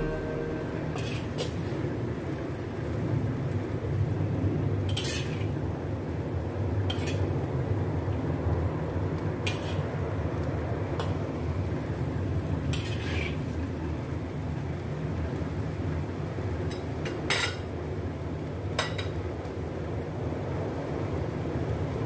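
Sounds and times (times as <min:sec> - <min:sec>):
metal spatula scraping a wok: 0:00.0 - 0:01.6, 0:04.9 - 0:05.6, 0:06.9 - 0:07.2, 0:09.4 - 0:09.8, 0:12.7 - 0:13.4
steady low rumble: 0:00.0 - 0:02.0.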